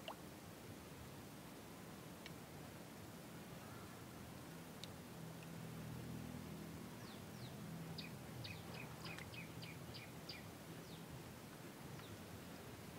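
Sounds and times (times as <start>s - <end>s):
small bird chirping: 7.0s - 11.0s.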